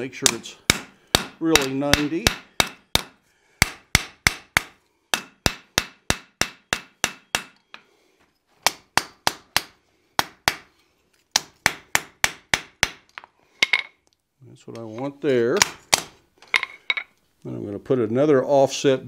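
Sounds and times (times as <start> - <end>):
hammer striking steel on anvil: 0.2 - 7.8.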